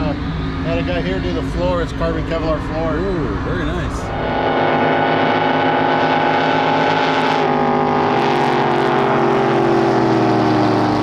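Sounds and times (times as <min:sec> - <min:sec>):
boat engine idling: 0:00.0 - 0:11.0.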